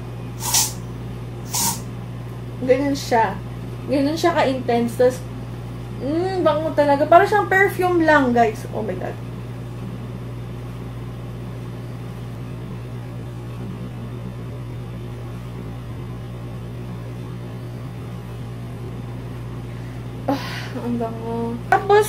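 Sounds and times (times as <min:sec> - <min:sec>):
faint hiss: 0:00.4 - 0:00.8, 0:01.5 - 0:01.8
low hum: 0:07.8 - 0:22.0.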